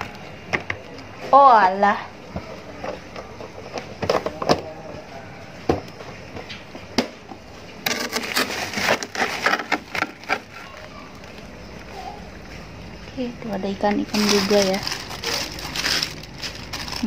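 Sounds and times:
rustling and clattering: 7.8 - 12.7, 14.1 - 17.0.

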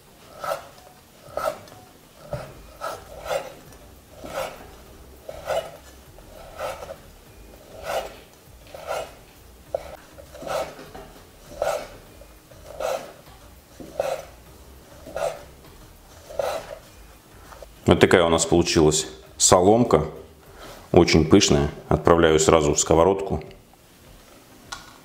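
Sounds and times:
knife slicing flatbread: 0.3 - 4.7, 5.3 - 7.0, 7.7 - 12.0, 12.7 - 14.3, 16.3 - 16.8.

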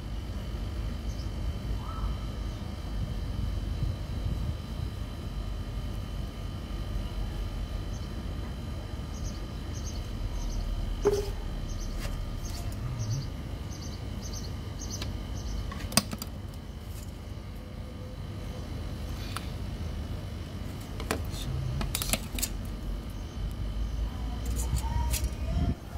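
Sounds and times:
steady low rumble: 0.0 - 15.7, 16.3 - 25.9
plastic pipe being handled: 11.0 - 11.4.

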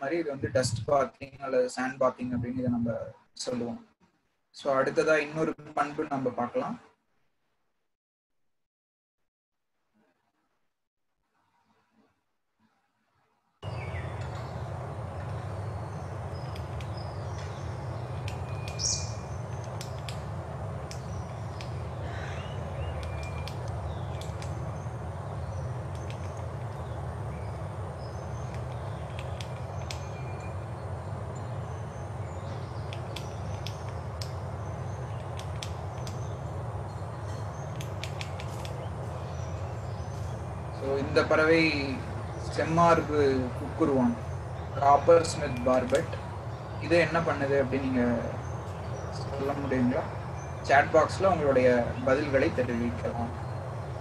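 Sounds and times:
bird chirps: 13.6 - 54.0
outdoor hiss: 13.6 - 54.0
bird tapping on tree trunk: 22.8 - 24.6, 37.7 - 38.8.

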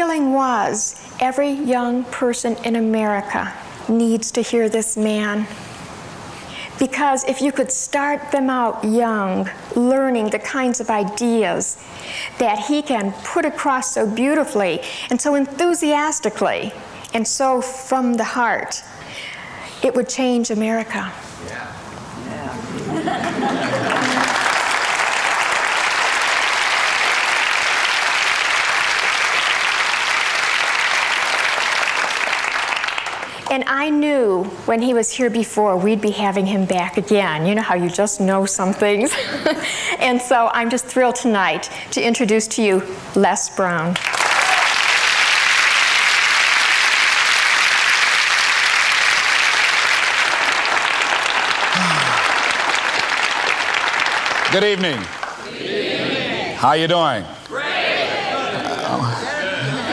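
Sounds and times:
audience applauding: 22.8 - 33.4, 44.0 - 55.5
person calling out: 51.8 - 52.2, 58.5 - 59.9.

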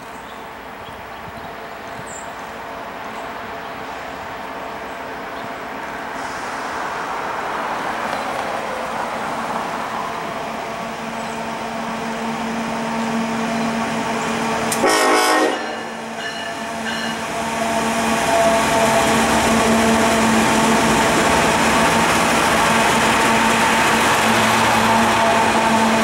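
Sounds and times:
diesel locomotive engines: 0.0 - 26.0
train wheels on rails: 0.0 - 26.0
locomotive horn blast: 14.6 - 20.4, 24.8 - 26.0.

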